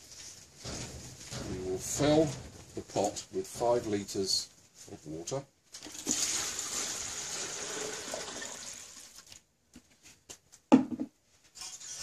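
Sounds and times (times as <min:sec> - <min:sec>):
loud clunk: 0:00.6 - 0:04.4
water pouring into a pot: 0:05.8 - 0:09.3.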